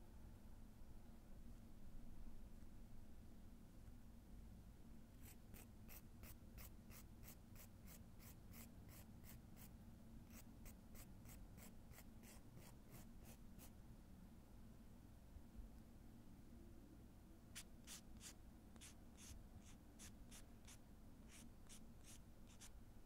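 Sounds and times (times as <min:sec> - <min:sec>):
nail file scraping fingernail: 0:17.6 - 0:22.7.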